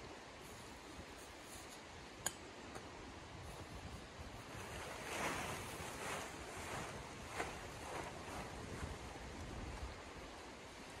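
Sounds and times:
tent fabric rustling: 3.4s - 11.0s.

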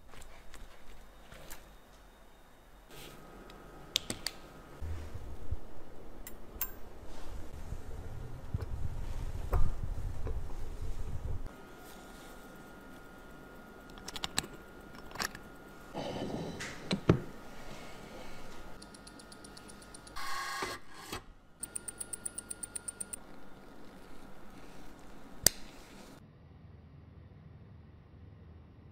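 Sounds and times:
mechanical watch ticking rapidly: 18.8s - 20.2s, 21.6s - 24.6s.

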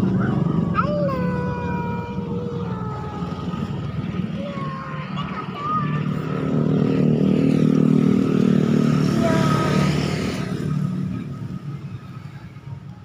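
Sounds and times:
motorcycle engine passing: 3.2s - 12.5s.

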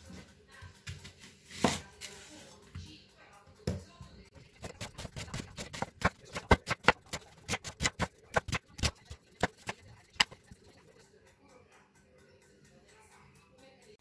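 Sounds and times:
knife chopping onion on wooden board: 4.4s - 10.4s.

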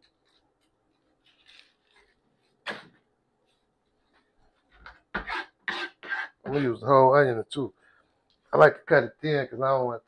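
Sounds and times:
onion skin rustling: 0.0s - 2.6s.

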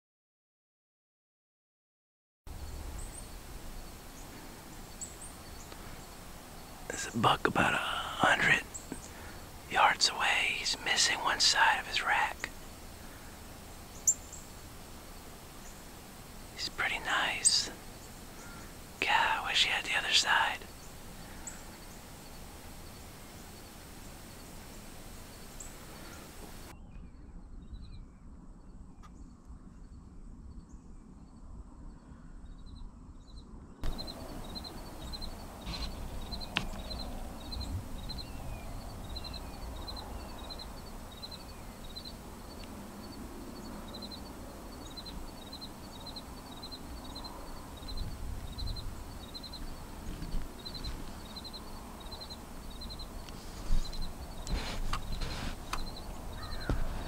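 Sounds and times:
small bird chirping: 2.6s - 28.0s, 32.6s - 57.0s
background hush: 2.8s - 26.7s, 33.8s - 57.0s
short falling bird calls: 33.8s - 42.2s, 52.8s - 57.0s.

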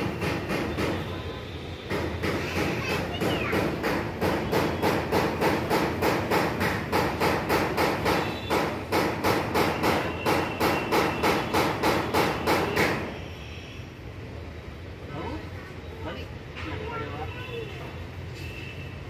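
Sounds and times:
rapid sharp knocking: 0.0s - 13.1s.

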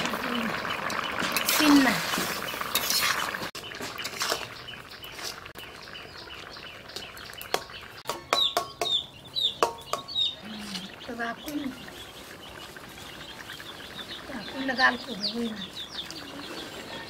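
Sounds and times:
ladle scraping in iron pot: 1.0s - 5.5s
chickens clucking: 7.6s - 17.0s.

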